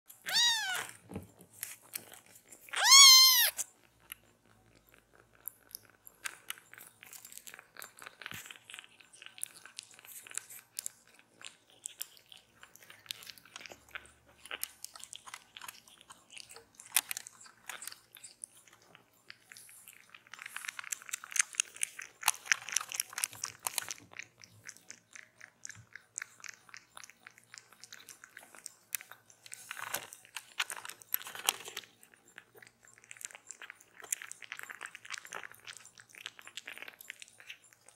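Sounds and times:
kitten suckling at a bottle: 0:00.1 - 0:37.9
kitten meowing: 0:00.2 - 0:01.0, 0:02.7 - 0:03.6.

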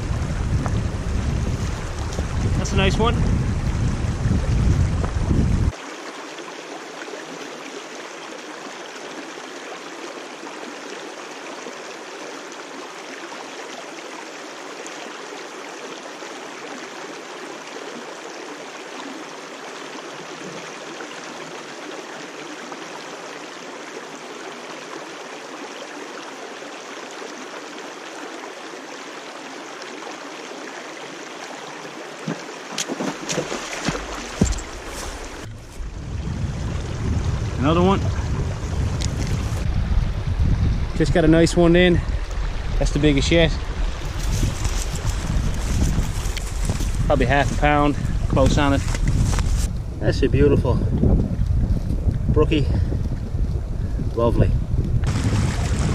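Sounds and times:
water running over rocks: 0:00.0 - 0:55.9
knocks and splashes: 0:31.8 - 0:39.8, 0:55.0 - 0:55.9.

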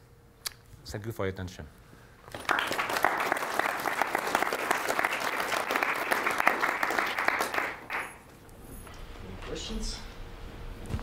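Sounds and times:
audience applauding: 0:02.3 - 0:08.3.

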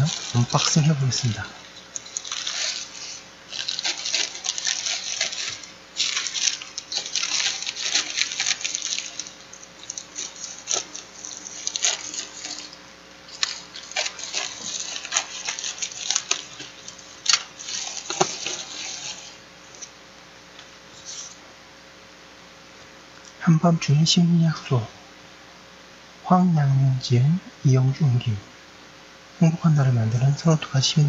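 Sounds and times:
bubble wrap mailer crinkling: 0:00.0 - 0:20.0, 0:20.9 - 0:21.4.

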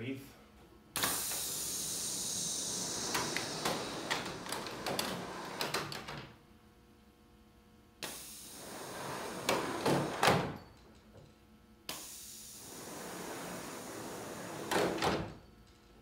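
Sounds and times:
pneumatic cylinder air rush: 0:01.0 - 0:05.7, 0:08.0 - 0:10.2, 0:11.9 - 0:15.4.

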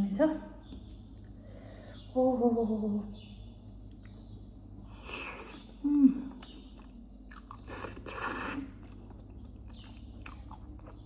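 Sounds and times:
person slurping noodles: 0:07.7 - 0:08.7.

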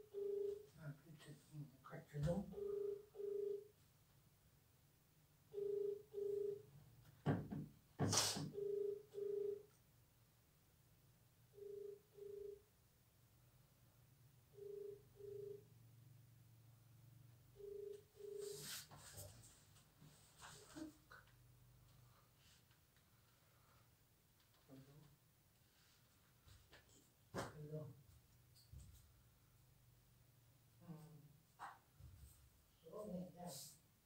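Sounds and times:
phone ringback double beep: 0:00.1 - 0:00.6, 0:02.6 - 0:03.7, 0:05.5 - 0:06.6, 0:08.5 - 0:09.6, 0:11.6 - 0:12.6, 0:14.5 - 0:15.7.

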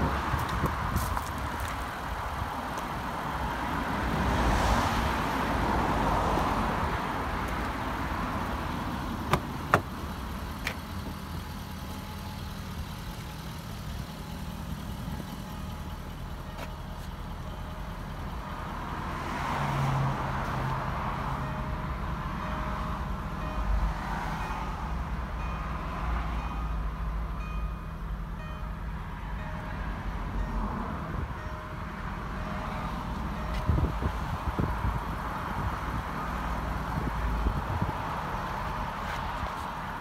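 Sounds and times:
road traffic passing: 0:00.0 - 0:40.0
car door latch clicks: 0:09.2 - 0:10.0.

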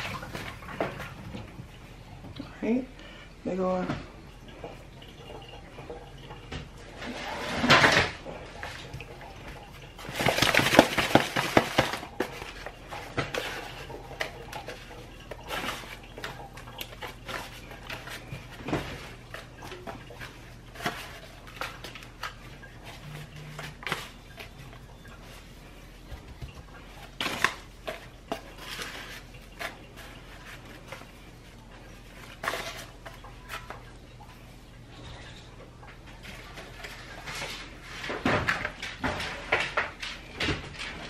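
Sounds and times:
foil pan crinkling: 0:07.1 - 0:34.5.

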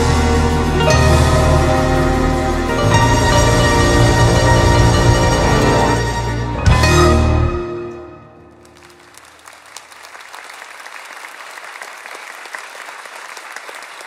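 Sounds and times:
music chord: 0:00.0 - 0:08.6
audience applause: 0:08.6 - 0:14.0.

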